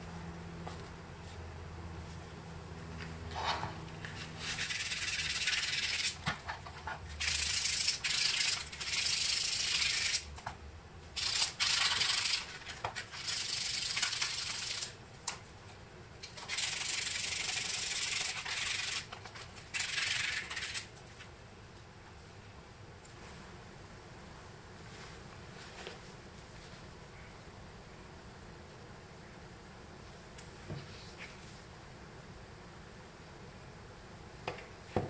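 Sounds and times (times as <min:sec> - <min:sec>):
sandpaper rubbing on plastic: 0:04.1 - 0:10.3, 0:11.2 - 0:15.0, 0:16.4 - 0:20.9.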